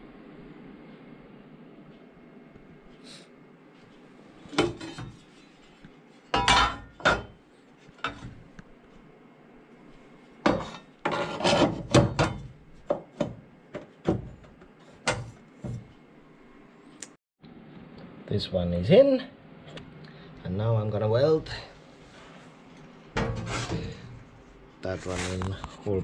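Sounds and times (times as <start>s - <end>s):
steel panel knocking and clanking: 10.5s - 15.8s, 23.2s - 23.9s.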